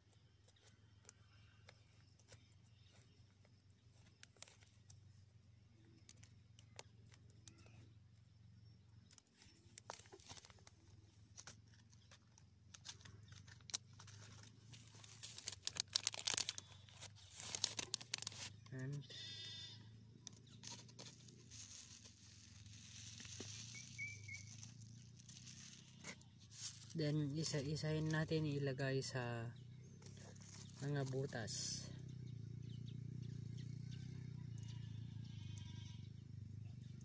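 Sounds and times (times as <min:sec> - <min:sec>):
paper packet crinkling and tearing: 0:09.5 - 0:12.1, 0:12.8 - 0:18.9, 0:20.4 - 0:27.8.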